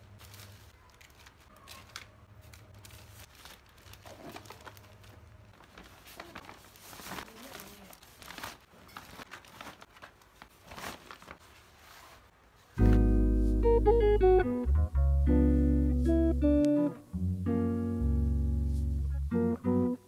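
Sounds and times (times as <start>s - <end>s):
packaging crinkling and rustling: 0.0s - 13.0s.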